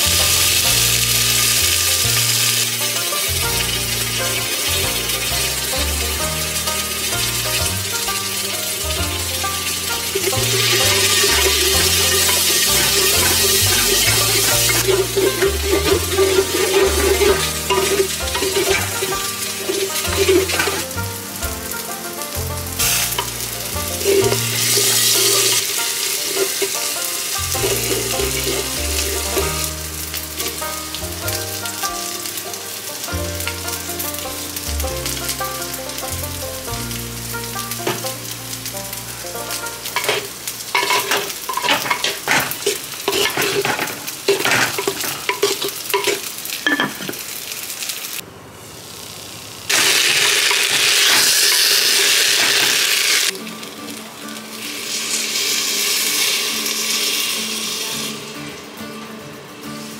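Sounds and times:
soft background music: 0.0s - 42.1s, 53.3s - 59.9s
spices sizzling in a pot: 0.0s - 59.9s
stirring clicks and scrapes: 9.9s - 21.0s, 39.9s - 46.3s.

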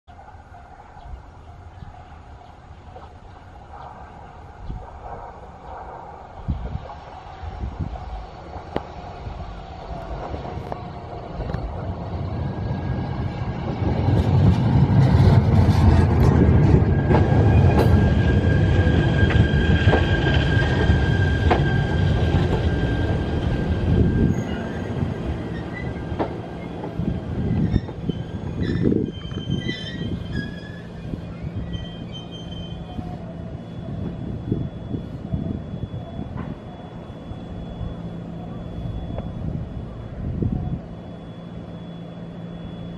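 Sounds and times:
electric train rumble: 0.1s - 42.9s
high steady brake squeal: 16.6s - 42.9s.

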